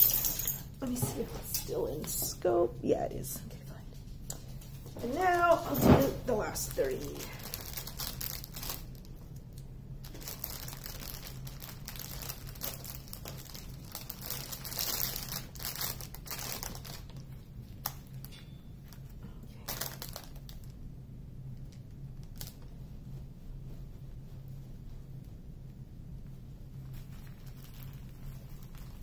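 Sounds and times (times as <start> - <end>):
plastic bags crinkling: 4.9 - 9.3, 10.0 - 18.2, 19.6 - 20.7, 27.0 - 29.0.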